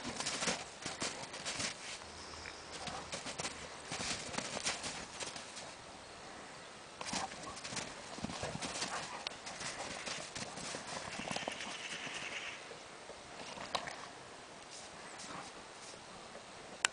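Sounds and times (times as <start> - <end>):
dogs scuffling in snow: 0.0 - 5.8, 7.0 - 12.6, 14.7 - 16.2.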